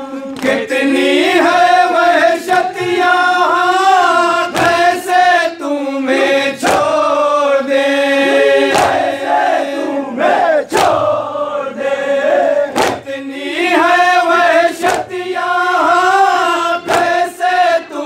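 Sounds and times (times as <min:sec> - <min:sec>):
men chanting in unison: 0:00.0 - 0:18.0
hands slapping chests: 0:00.3 - 0:00.6, 0:04.5 - 0:05.0, 0:06.6 - 0:07.0, 0:08.7 - 0:09.2, 0:10.7 - 0:11.2, 0:12.7 - 0:13.1, 0:14.8 - 0:15.2, 0:16.8 - 0:17.3.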